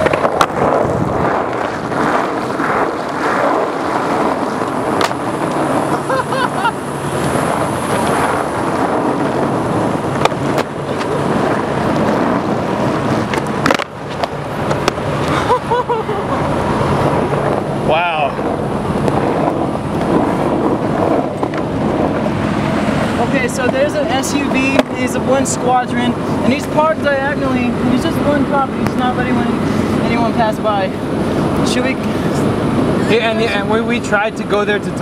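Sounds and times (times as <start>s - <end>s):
skateboard clacks: 0.0s - 6.1s, 10.0s - 12.4s, 13.1s - 15.4s, 24.7s - 25.0s
skateboard wheels rolling on wet asphalt: 0.0s - 32.4s.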